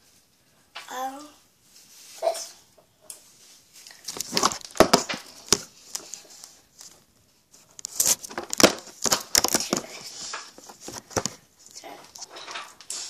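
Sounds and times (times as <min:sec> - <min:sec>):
close rustling scraping and clicking: 0:03.1 - 0:13.0.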